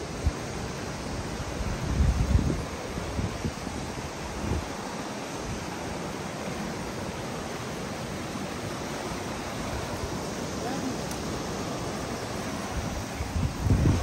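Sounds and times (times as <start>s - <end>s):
wind rumble on microphone: 0.0s - 5.9s, 8.8s - 14.0s
river water rushing: 0.0s - 14.0s.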